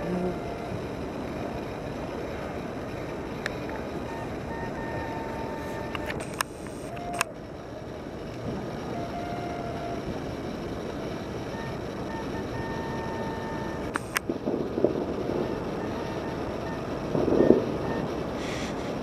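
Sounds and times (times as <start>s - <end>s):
distant fireworks rumble: 0.0s - 19.0s
fireworks pops and thumps: 13.8s - 19.0s
sharp firework cracks: 13.8s - 19.0s.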